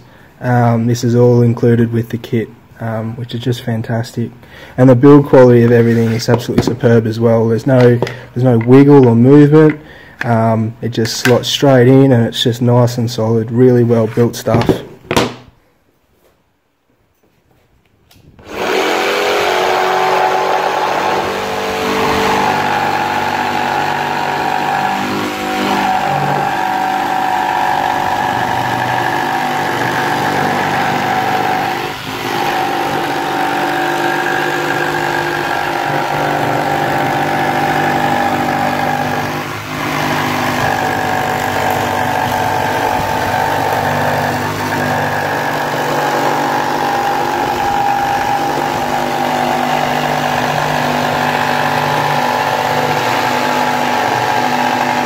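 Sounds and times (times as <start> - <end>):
jigsaw cutting board: 5.6 - 6.9, 18.4 - 55.0.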